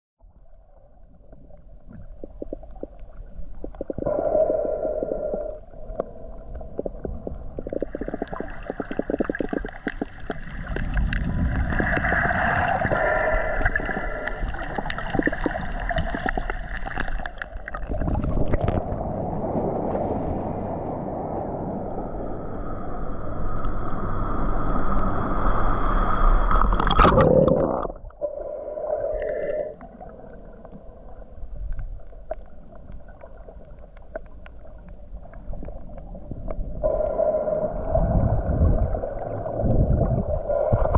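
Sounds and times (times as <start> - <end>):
water gurgling underwater: 0.2 - 22.8, 26.4 - 40.9
sharp crackling clicks: 5.9 - 12.2
steady humming tones: 18.7 - 40.9.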